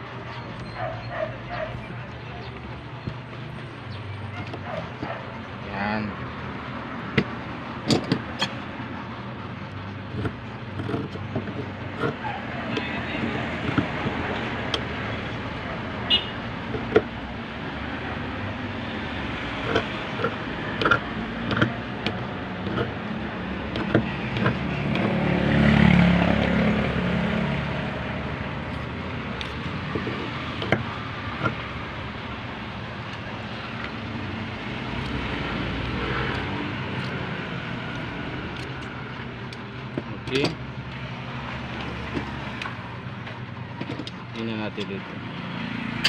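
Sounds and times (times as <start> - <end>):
vehicle passing: 11.7 - 39.8, 40.6 - 43.2, 45.2 - 46.0.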